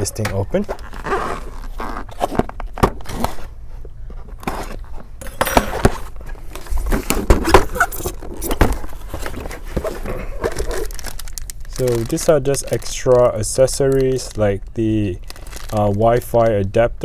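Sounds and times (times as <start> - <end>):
packaging clicks scrapes and rustles: 4.2 - 16.6.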